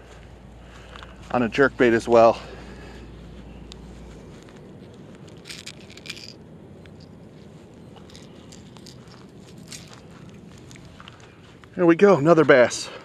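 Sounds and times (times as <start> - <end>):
short clicks and metallic clinks: 5.2 - 7.1.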